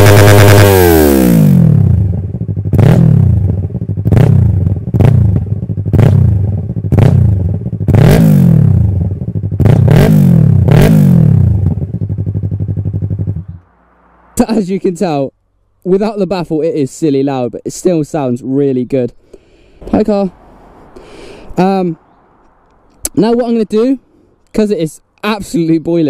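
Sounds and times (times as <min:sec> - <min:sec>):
loud motorcycle engine revving: 0:00.0 - 0:14.6.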